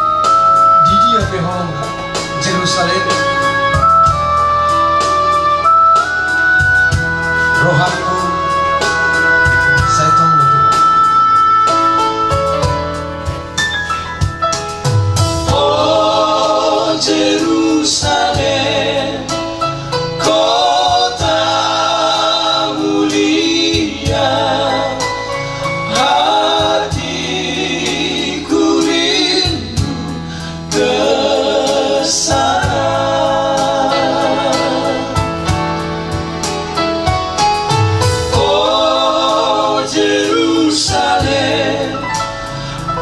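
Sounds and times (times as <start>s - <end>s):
electronic keyboard: 0.0s - 43.0s
men singing together: 15.4s - 35.6s, 38.2s - 43.0s.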